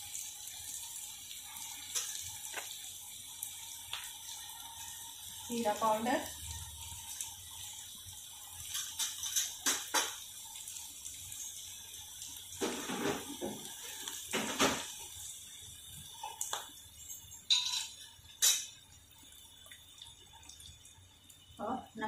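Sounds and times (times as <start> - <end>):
steel utensils clinking: 17.0 - 18.8.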